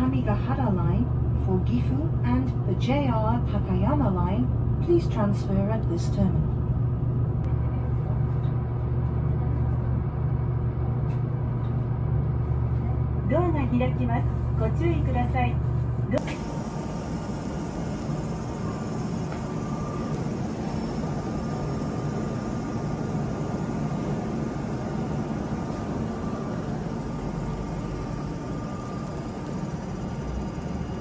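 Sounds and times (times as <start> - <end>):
stationary electric train humming: 0.0 - 31.0
faint high whine: 16.2 - 31.0.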